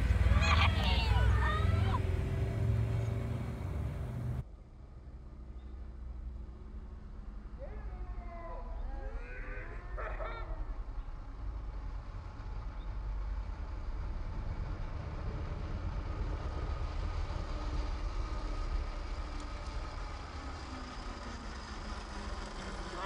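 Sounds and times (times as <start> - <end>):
steady low rumble: 0.0 - 23.0
electric scooter motor whining: 12.4 - 23.0.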